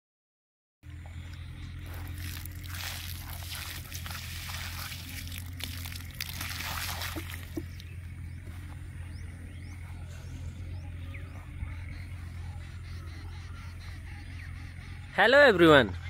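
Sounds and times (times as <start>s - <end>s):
steady low hum: 0.8s - 16.0s
water splashing and trickling: 1.8s - 7.9s.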